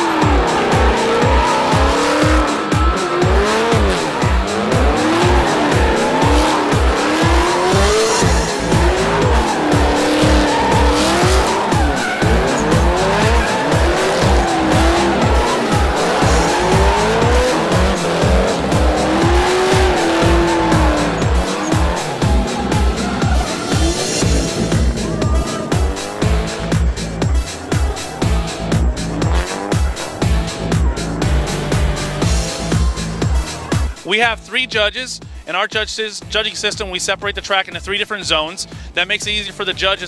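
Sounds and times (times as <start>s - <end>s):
tyres squealing: 0.0s - 30.2s
car engines revving: 0.0s - 34.1s
music with thumping beat: 0.0s - 40.0s.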